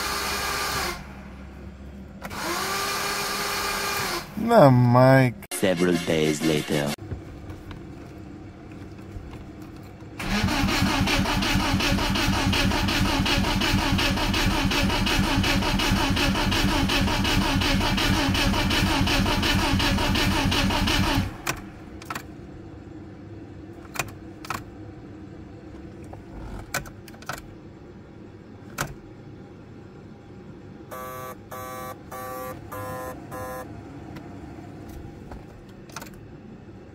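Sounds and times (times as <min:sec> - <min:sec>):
starter motor cranking engine: 0:10.2 - 0:21.6.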